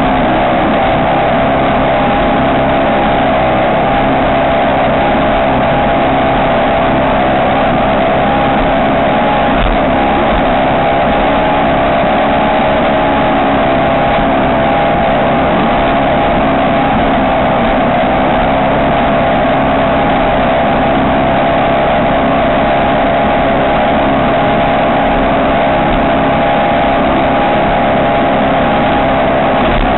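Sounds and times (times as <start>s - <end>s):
boat engine running hard: 0.0s - 29.9s
constant rushing noise: 0.0s - 29.9s.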